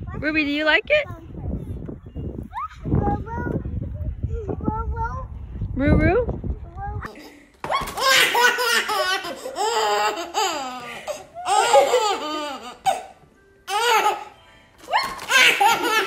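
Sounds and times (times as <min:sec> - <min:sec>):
baby laughing: 0:07.1 - 0:16.0.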